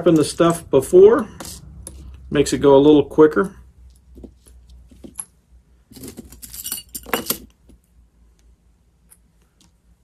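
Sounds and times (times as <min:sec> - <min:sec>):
metal pins and chain jangling: 0:05.0 - 0:07.6.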